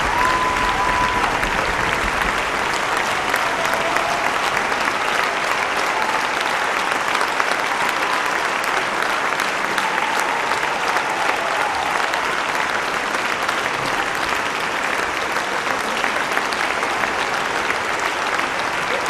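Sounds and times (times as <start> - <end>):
audience applause: 0.0 - 19.0.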